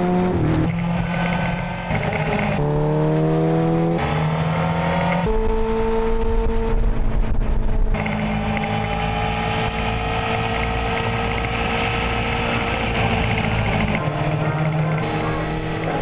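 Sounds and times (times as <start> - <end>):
racing engine high pitch: 0.0 - 6.7, 7.5 - 16.0
wind buffeting microphone: 5.2 - 8.1.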